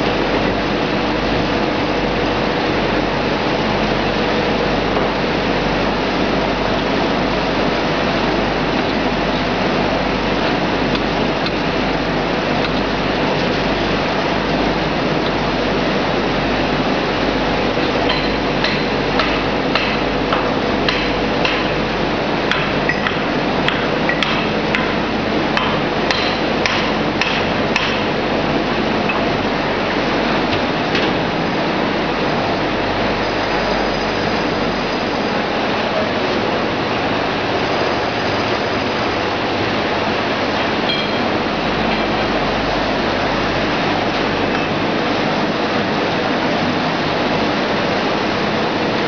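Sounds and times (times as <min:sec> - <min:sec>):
oil press machinery running: 0:00.0 - 0:49.0
sharp hammer-like knocks: 0:25.6 - 0:28.1.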